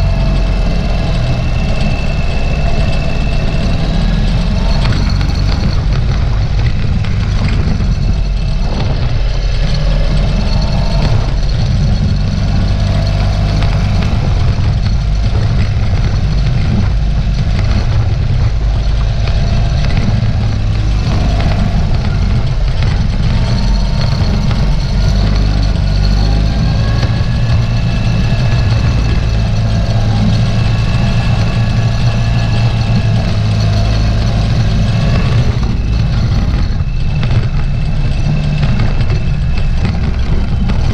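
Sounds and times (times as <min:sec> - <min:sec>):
motorcycle engine running: 0:00.0 - 0:40.9.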